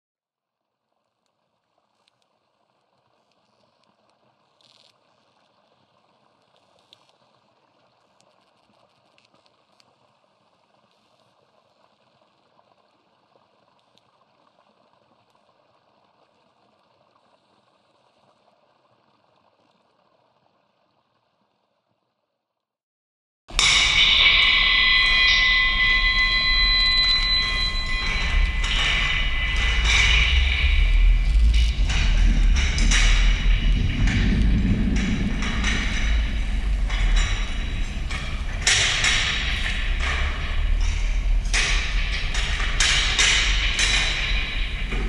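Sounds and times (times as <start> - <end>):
faint crackle with ticks: 0.8 - 22.3.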